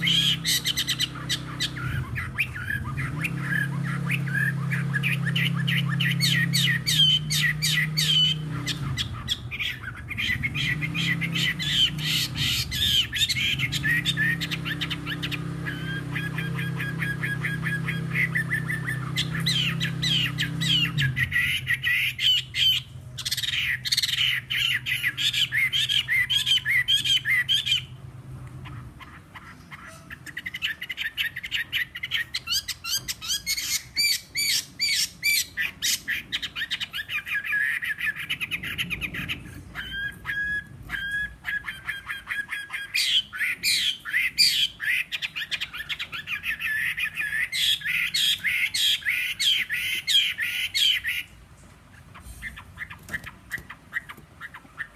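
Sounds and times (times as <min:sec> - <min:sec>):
whistled bird notes: 0:00.0 - 0:27.9
bird singing fast varied notes: 0:00.0 - 0:28.0.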